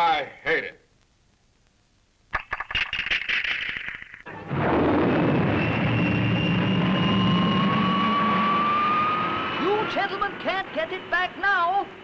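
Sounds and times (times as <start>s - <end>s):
crackling pops: 0.8s - 4.3s
rocket roar: 4.3s - 10.0s
thin rising whistle: 5.1s - 9.9s.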